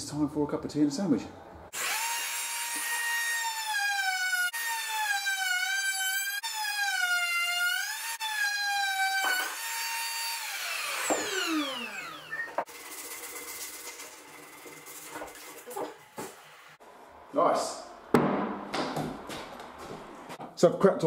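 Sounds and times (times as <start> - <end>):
router whining cutting wood: 1.7 - 12.7.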